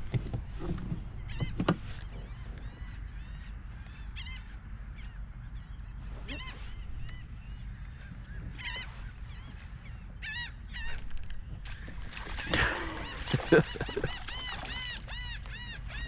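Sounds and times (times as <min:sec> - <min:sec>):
fish splashing at the surface: 0:11.7 - 0:15.2
birds honking squawks: 0:11.7 - 0:16.0.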